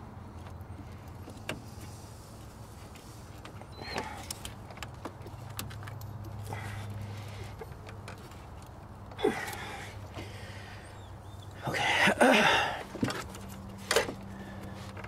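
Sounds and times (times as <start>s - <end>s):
light clicks and knocks: 2.8s - 10.3s.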